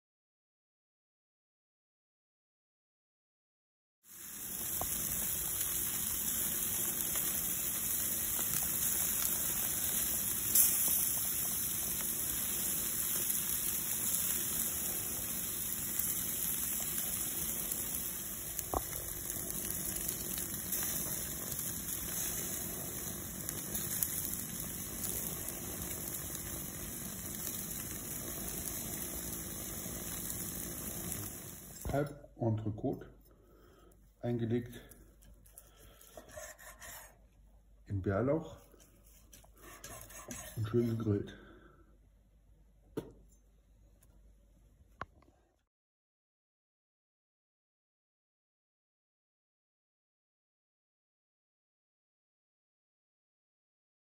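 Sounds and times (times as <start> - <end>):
steaks sizzling on a grill: 4.1 - 31.9.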